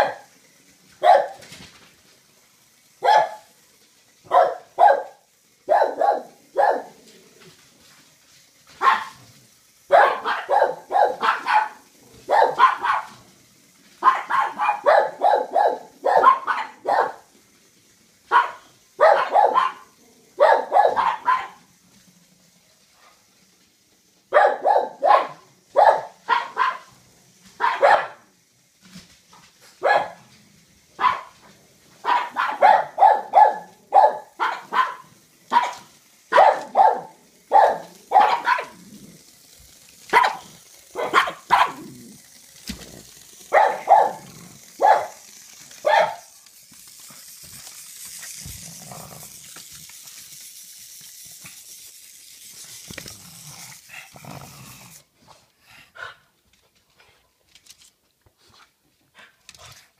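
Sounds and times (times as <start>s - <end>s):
dog barking: 1.0s - 1.4s, 3.0s - 3.5s, 4.3s - 7.0s, 8.8s - 9.2s, 9.9s - 13.2s, 14.0s - 17.2s, 18.3s - 21.6s, 24.3s - 26.9s, 27.6s - 28.2s, 29.8s - 30.2s, 31.0s - 31.4s, 32.0s - 38.8s, 40.1s - 41.9s, 43.5s - 45.2s, 45.8s - 46.2s.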